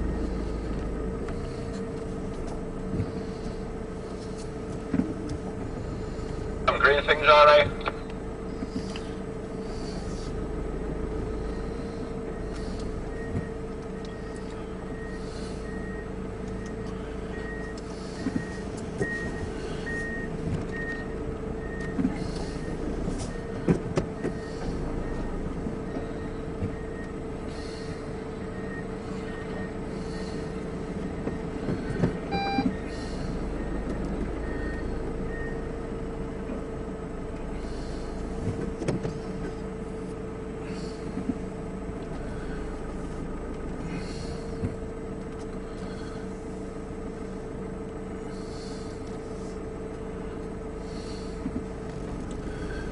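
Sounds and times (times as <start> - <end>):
truck engine droning: 0.0 - 52.9
high warning beeper: 32.3 - 32.8.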